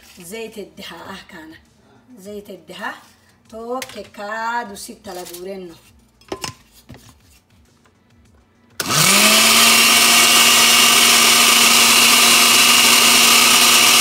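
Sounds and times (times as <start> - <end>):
blender motor running: 8.8 - 14.0.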